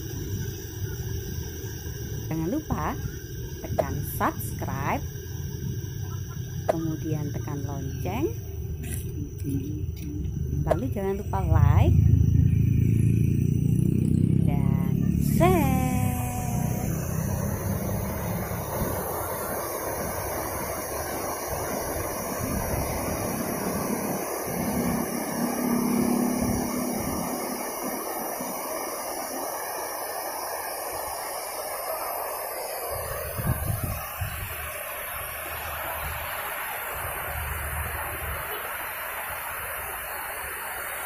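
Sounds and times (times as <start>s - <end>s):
traffic rumbling: 5.4s - 27.9s.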